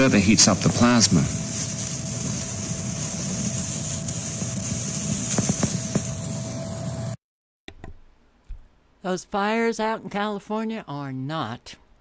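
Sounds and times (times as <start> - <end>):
constant electric whine: 0.0 - 7.2
electric arc hiss and buzz: 0.0 - 7.2
sharp electric crackles: 0.0 - 7.2.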